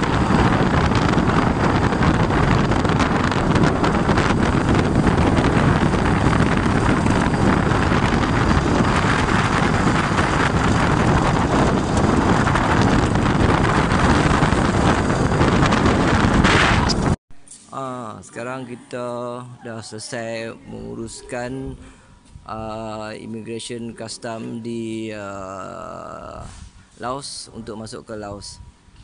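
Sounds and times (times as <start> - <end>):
motorcycle engines running: 0.0 - 17.2
wind buffeting microphone: 0.0 - 17.2, 20.7 - 27.0.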